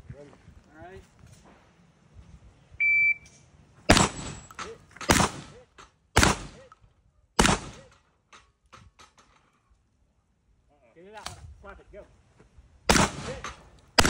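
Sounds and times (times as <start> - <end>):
shot timer beep: 2.8 - 3.3
handgun shots: 6.2 - 6.6.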